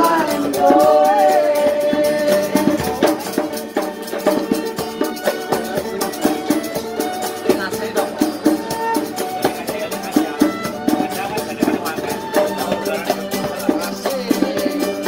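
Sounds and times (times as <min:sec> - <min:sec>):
wavering melody line: 0:00.0 - 0:03.1
percussive strikes: 0:00.0 - 0:15.0.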